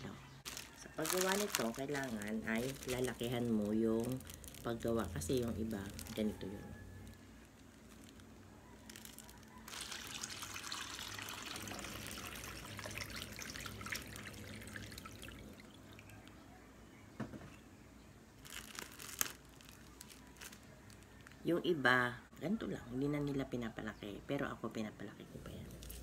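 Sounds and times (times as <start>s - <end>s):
water pouring into plastic bag: 0.4s - 6.5s, 7.6s - 16.3s, 18.4s - 21.3s.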